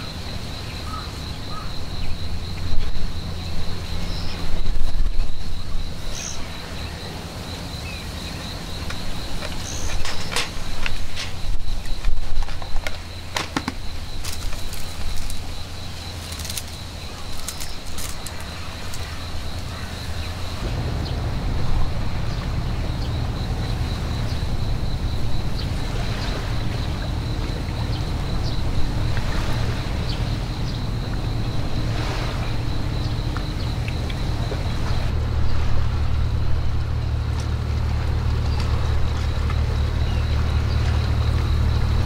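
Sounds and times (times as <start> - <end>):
high insect trill: 0.0 - 42.0
low uneven rumble: 0.0 - 42.0.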